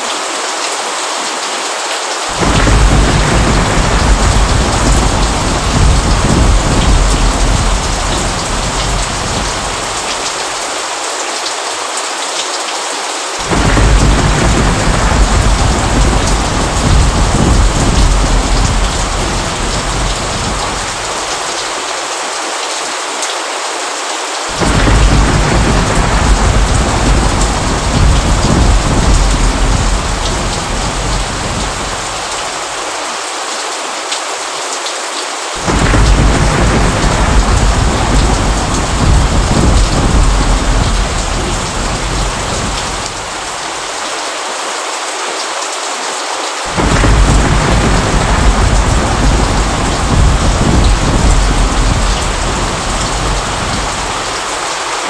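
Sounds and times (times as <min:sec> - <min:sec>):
steady rain: 0:00.0 - 0:55.0
thunder rumbling: 0:02.4 - 0:10.6, 0:13.4 - 0:21.7, 0:24.5 - 0:32.7, 0:35.6 - 0:43.8, 0:46.7 - 0:54.7.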